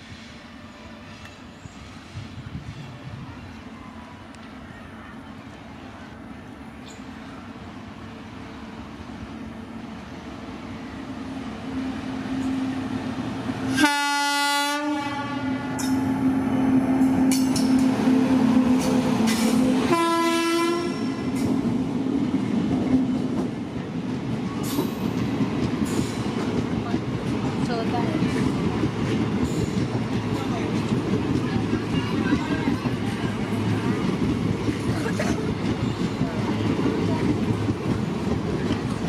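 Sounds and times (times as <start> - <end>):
train passing at speed: 0.0 - 39.0
locomotive horn blasts: 13.7 - 16.0, 19.9 - 21.3.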